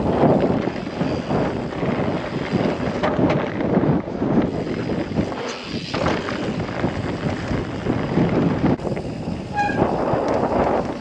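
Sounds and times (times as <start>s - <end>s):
bike tyre and trail rattle: 0.0s - 11.0s
wind on microphone: 0.0s - 11.0s
short high-pitched squeal: 9.5s - 10.0s.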